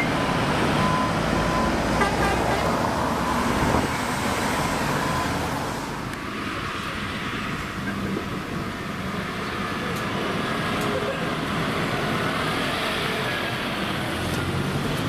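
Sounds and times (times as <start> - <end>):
diesel engine pulling away: 0.0 - 6.1, 7.3 - 15.0
road traffic rumble: 0.0 - 15.0.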